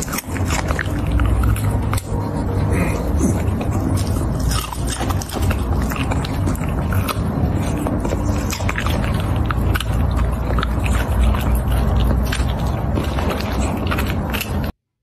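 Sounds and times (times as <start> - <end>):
steady low hum: 0.0 - 14.8
dog chewing crunchy food: 0.0 - 15.0.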